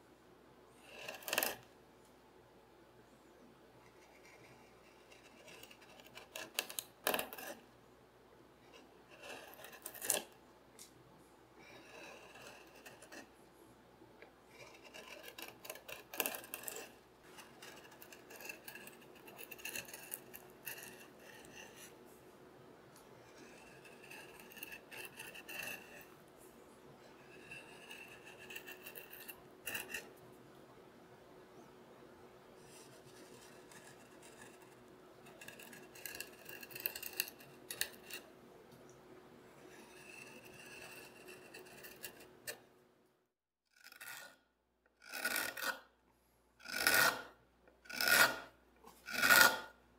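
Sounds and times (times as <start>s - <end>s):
chisel slicing wood: 46.7s - 47.3s.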